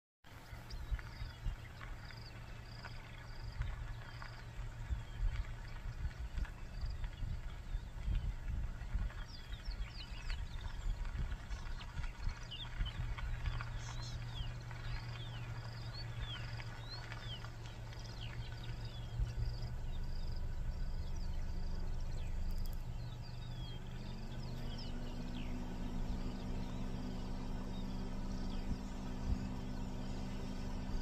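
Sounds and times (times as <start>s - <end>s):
steady low hum: 0.3s - 31.0s
bird chirps: 9.0s - 31.0s.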